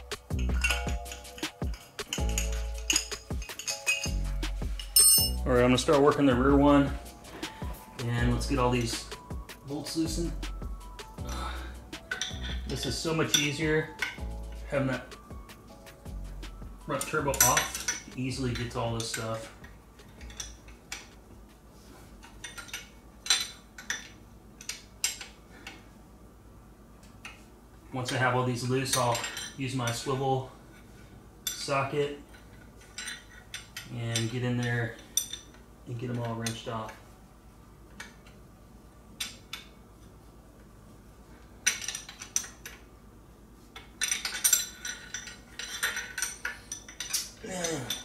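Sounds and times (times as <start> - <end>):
hand tools clanking on metal: 0.2 - 6.2, 11.2 - 15.2, 16.9 - 21.1, 28.0 - 30.3, 44.0 - 48.0.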